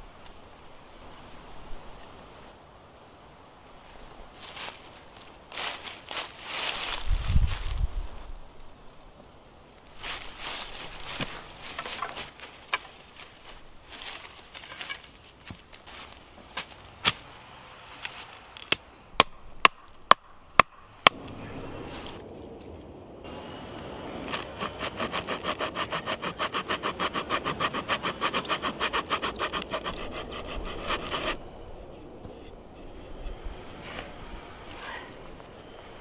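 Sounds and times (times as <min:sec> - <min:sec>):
hand saw cutting wood: 0:24.3 - 0:31.4.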